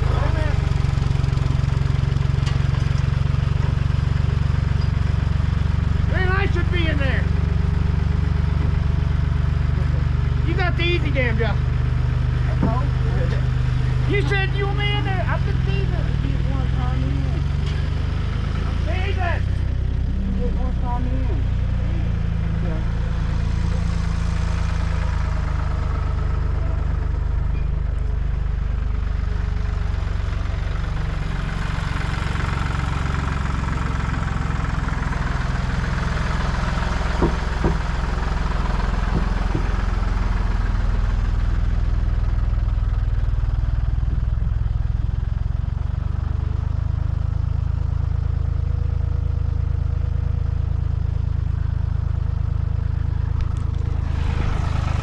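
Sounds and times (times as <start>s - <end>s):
tractor engine running: 0.0s - 55.0s.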